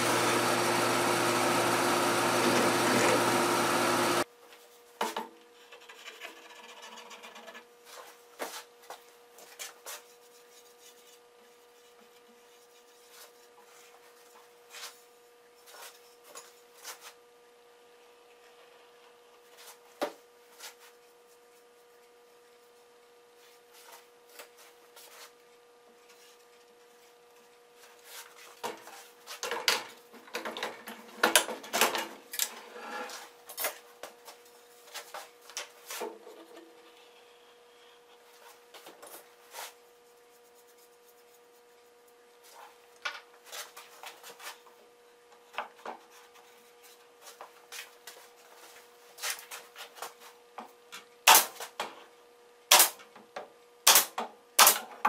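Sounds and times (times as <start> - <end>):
faint steady hum: 32.2 - 54.6
nail gun firing: 51.3 - 51.6, 52.7 - 53.0, 53.8 - 54.9.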